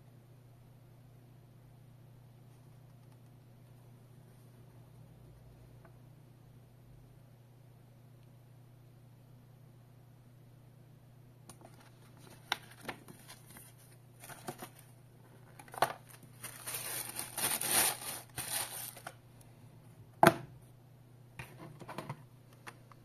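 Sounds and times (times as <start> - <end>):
plastic bag crinkling: 15.5 - 19.2.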